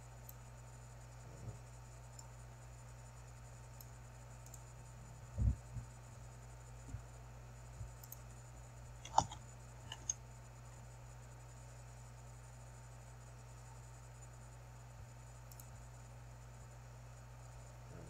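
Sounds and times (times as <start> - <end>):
low electrical hum: 0.0 - 18.0
computer mouse and keyboard clicks: 9.0 - 10.2.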